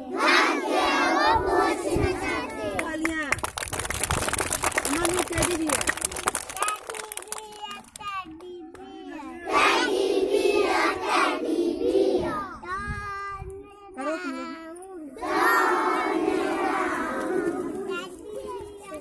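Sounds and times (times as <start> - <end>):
group of children singing: 0.0 - 2.6, 9.5 - 12.6, 15.2 - 19.0
child singing: 0.0 - 2.8, 6.8 - 19.0.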